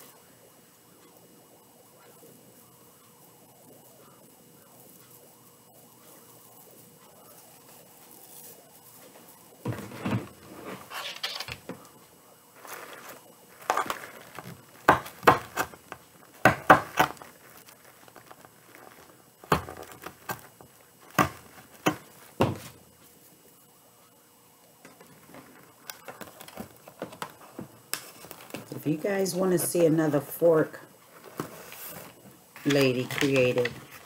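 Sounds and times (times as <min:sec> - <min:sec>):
burlap and mesh rustling: 0:12.6 - 0:22.7.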